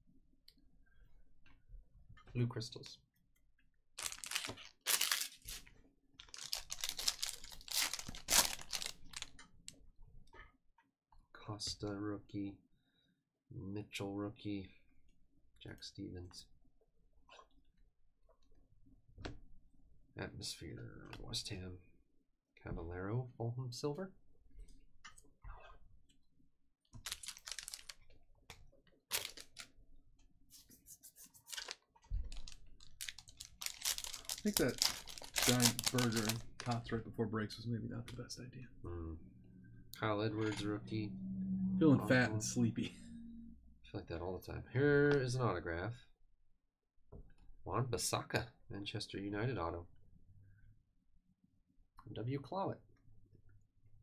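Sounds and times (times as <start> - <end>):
card pack wrapper tearing: 4.0 - 9.4, 27.0 - 28.0, 29.1 - 29.7, 31.4 - 36.8.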